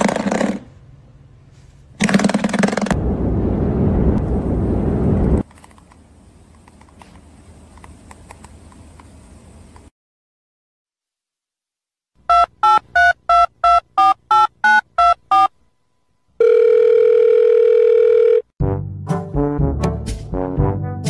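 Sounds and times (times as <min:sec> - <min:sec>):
keypad dialing beeps: 0:12.3 - 0:15.5
phone ringing tone: 0:12.3 - 0:15.5, 0:16.4 - 0:18.5
brassy music: 0:18.6 - 0:21.0.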